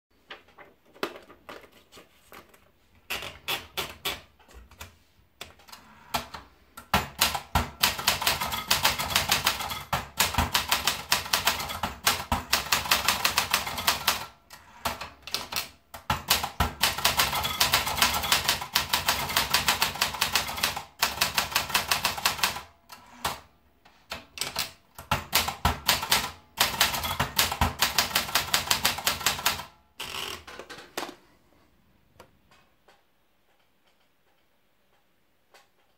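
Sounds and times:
typewriter keys striking: 6.1s - 23.4s, 24.1s - 29.7s.

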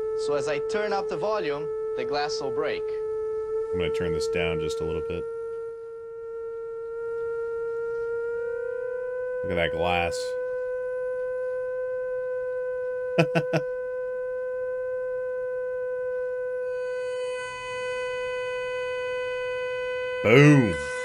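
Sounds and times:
loud steady speaker tone: 9.5s - 10.3s, 13.2s - 13.6s, 20.2s - 20.9s.

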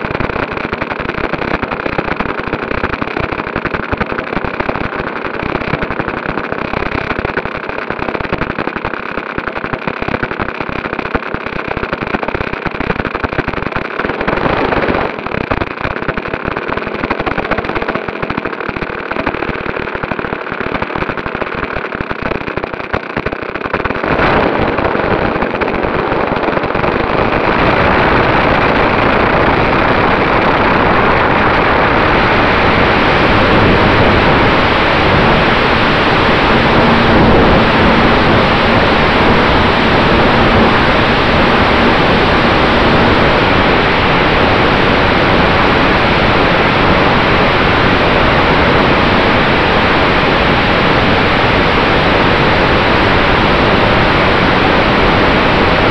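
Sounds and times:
wind on microphone: 24.0s - 55.9s
model plane engine and propeller: 31.0s - 43.9s.

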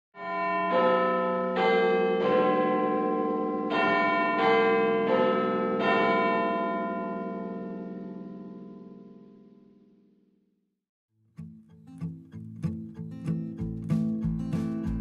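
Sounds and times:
church bells ringing: 0.2s - 10.1s.

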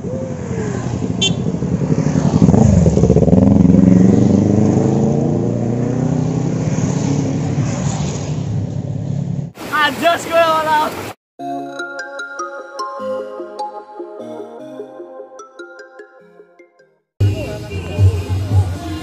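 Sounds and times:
motorcycles riding past: 0.0s - 9.5s.

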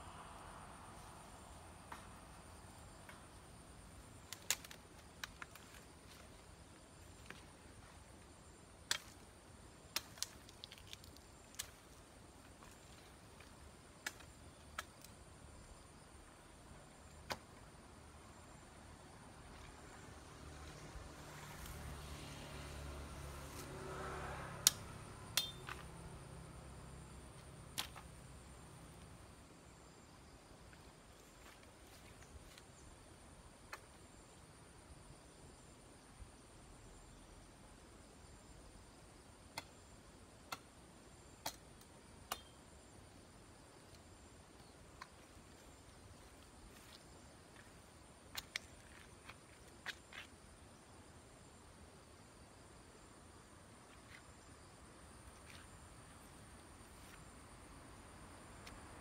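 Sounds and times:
twigs snapping underfoot: 4.2s - 6.4s, 8.8s - 9.3s, 9.9s - 15.2s, 24.6s - 25.9s, 27.7s - 28.1s, 41.4s - 42.6s, 48.3s - 50.3s.

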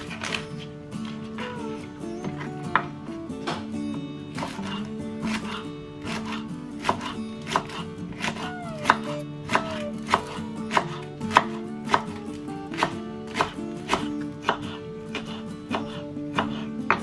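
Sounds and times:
background music: 0.0s - 17.0s
knife chopping on wooden board: 4.4s - 17.0s.

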